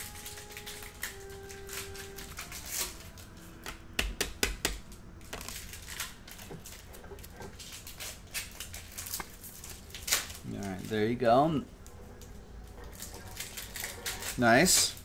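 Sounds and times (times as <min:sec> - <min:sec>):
cards clicking and tapping on table: 0:03.6 - 0:05.5.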